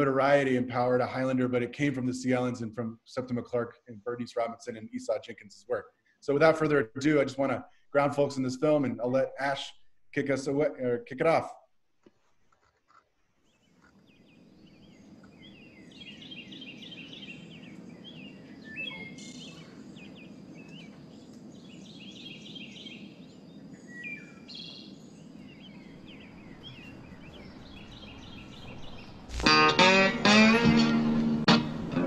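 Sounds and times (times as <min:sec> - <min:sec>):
birds chirping and trilling: 0:13.4 - 0:29.4
plucked guitar music: 0:29.3 - 0:32.0.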